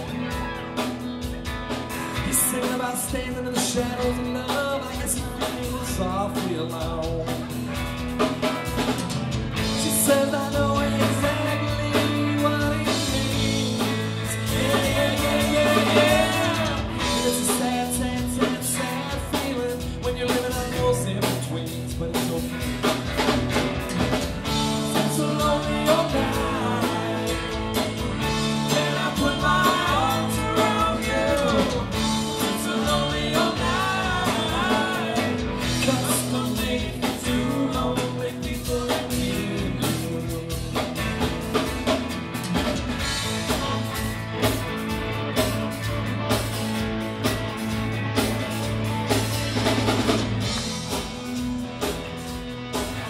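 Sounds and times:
drum kit: 0:00.0 - 0:53.0
electric guitar: 0:00.0 - 0:53.0
man singing: 0:02.1 - 0:07.7, 0:09.6 - 0:23.1, 0:24.0 - 0:41.3, 0:43.2 - 0:44.2.

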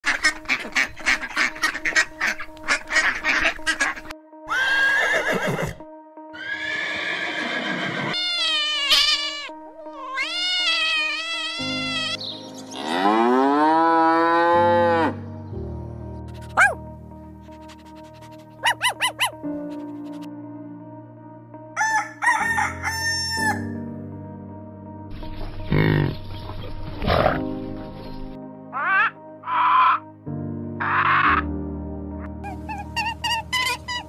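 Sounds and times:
duck quacks: 0:00.0 - 0:04.1, 0:28.8 - 0:30.0, 0:30.8 - 0:31.5
background music: 0:00.0 - 0:34.0
cat meows: 0:08.1 - 0:12.2
cow mooing: 0:12.7 - 0:15.2.

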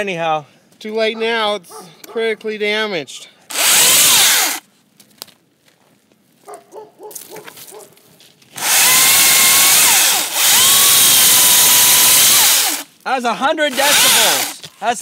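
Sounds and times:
electric chainsaw motor whining: 0:03.5 - 0:04.6, 0:08.6 - 0:12.9, 0:13.7 - 0:14.7.

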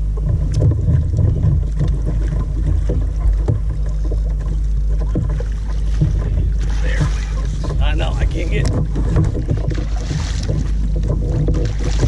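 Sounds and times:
water splashing against kayak hull: 0:00.0 - 0:12.0
wind buffeting microphone: 0:05.0 - 0:12.0.

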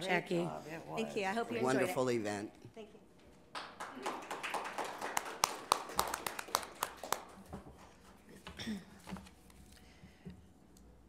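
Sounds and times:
people clapping: 0:03.5 - 0:08.2.

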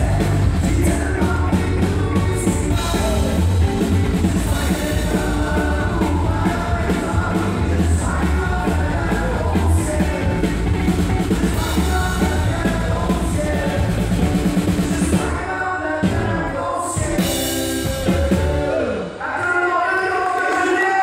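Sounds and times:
live band playing: 0:00.0 - 0:20.5
man singing: 0:00.0 - 0:21.0.

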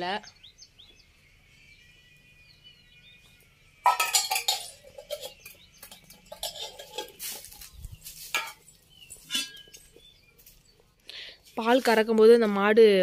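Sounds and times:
metal pot clanking on floor: 0:03.8 - 0:07.5, 0:08.3 - 0:09.8.

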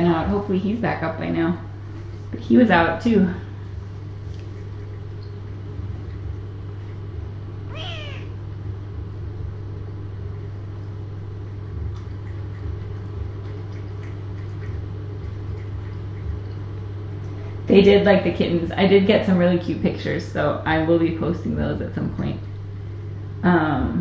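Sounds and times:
steady low hum: 0:00.0 - 0:24.0
kitten meowing: 0:07.7 - 0:08.3.

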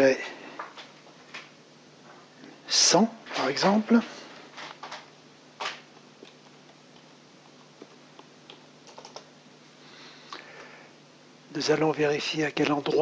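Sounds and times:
faint steady hum: 0:00.0 - 0:13.0
computer keyboard typing: 0:07.8 - 0:09.3.

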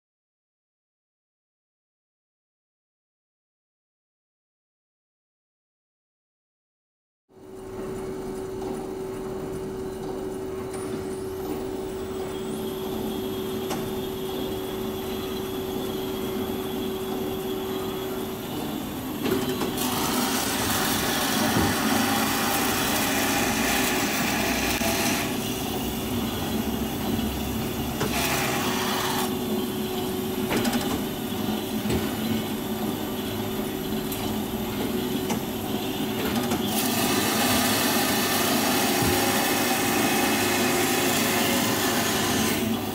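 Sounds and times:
band saw running: 0:14.1 - 0:30.2, 0:32.5 - 0:42.9
saw blade cutting metal: 0:19.8 - 0:25.5, 0:28.0 - 0:29.4, 0:36.7 - 0:42.9.

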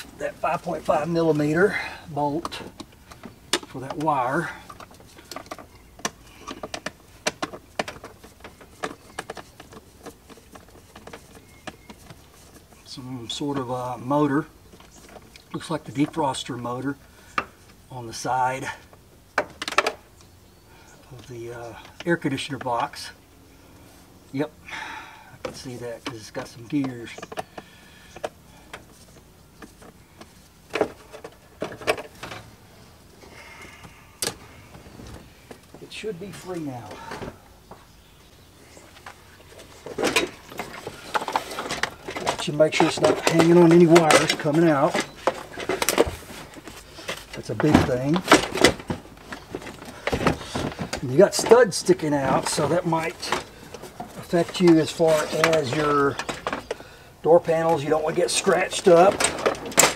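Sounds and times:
hand tools clicking and knocking: 0:00.0 - 0:12.8, 0:38.9 - 0:59.9
hard plastic parts knocking: 0:02.4 - 0:12.2, 0:39.8 - 0:56.8
hand tools clicking on metal and plastic: 0:02.4 - 0:12.7.

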